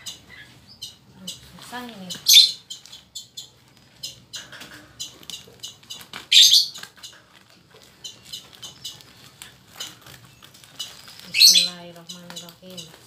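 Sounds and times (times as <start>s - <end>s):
plastic wrapping crinkling: 5.2s - 13.0s.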